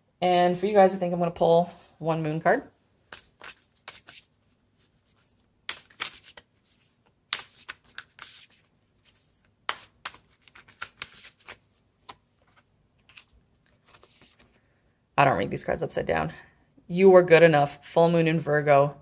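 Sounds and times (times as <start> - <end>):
cards being shuffled: 3.1 - 14.6.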